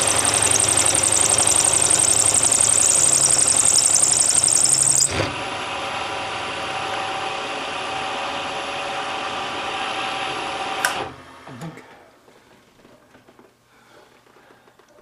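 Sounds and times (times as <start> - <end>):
milling machine cutting metal: 0.0 - 5.2
spindle winding down: 0.0 - 5.3.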